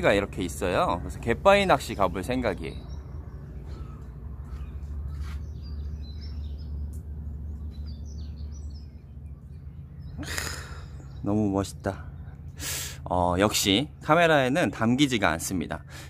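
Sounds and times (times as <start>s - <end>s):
low outdoor rumble: 0.0s - 16.0s
small birds chirping: 0.0s - 16.0s.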